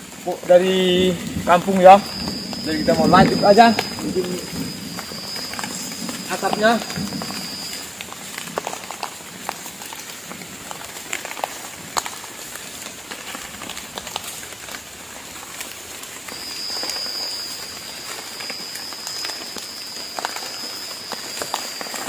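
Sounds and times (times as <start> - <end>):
steady high-pitched whine: 0.0 - 9.0, 14.8 - 22.0
light rain dripping: 0.0 - 22.0.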